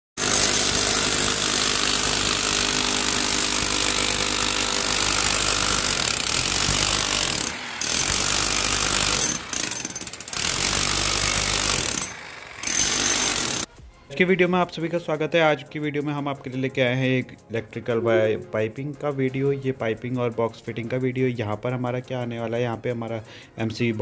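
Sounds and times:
demolition hammer on masonry: 0.2s - 13.7s.

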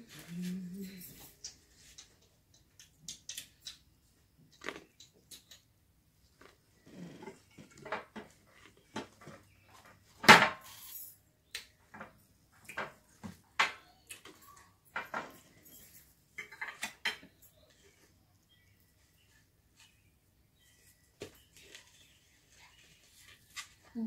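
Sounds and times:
cutlery clatter: 14.9s - 17.6s
cutlery clinking on plates: 14.9s - 17.6s.

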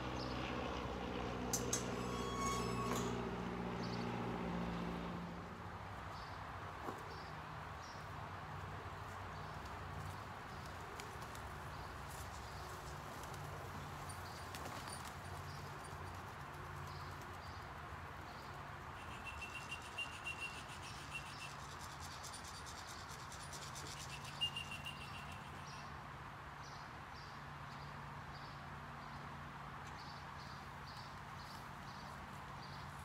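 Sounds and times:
pigeon wings clapping: 9.6s - 17.5s
faint bird chirps: 19.0s - 21.6s, 23.8s - 25.8s.

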